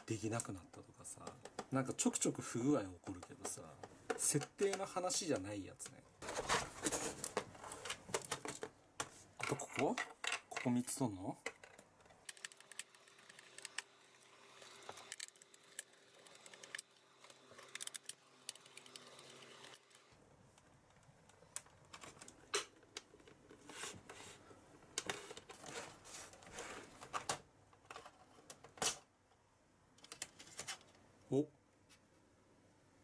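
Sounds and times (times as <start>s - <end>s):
plastic clicks and taps: 0.7s - 1.8s.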